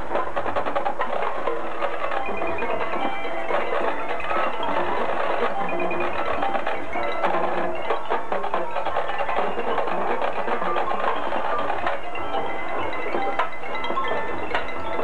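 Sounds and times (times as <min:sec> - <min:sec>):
mallet percussion notes: 0:00.0 - 0:15.0.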